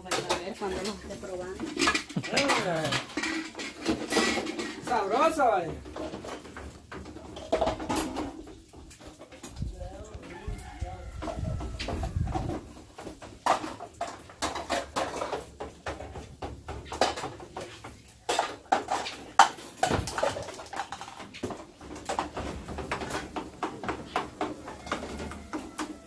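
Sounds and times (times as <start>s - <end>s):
cookware clattering: 0.0s - 6.5s.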